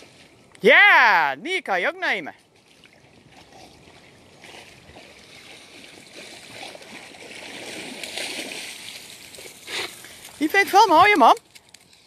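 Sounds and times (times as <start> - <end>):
dog swimming water sloshing: 2.4 - 10.5.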